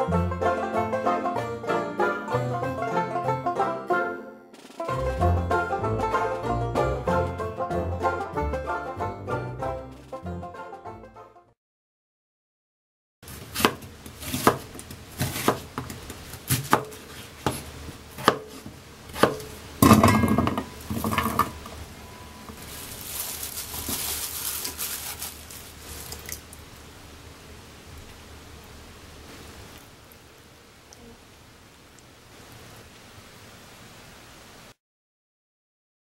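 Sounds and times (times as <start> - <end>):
soft rustling hiss: 13.3 - 34.8
potato chunks clattering into metal pot: 19.2 - 21.6.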